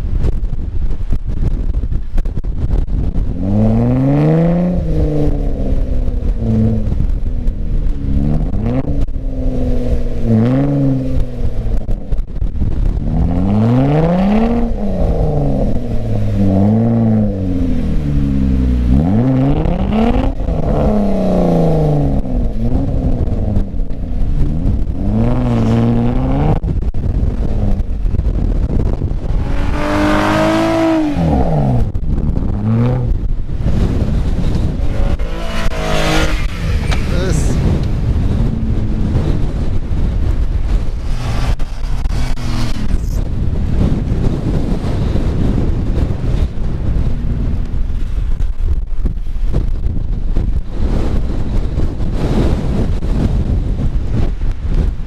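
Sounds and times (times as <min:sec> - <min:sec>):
engine revving: 0:03.3 - 0:46.5.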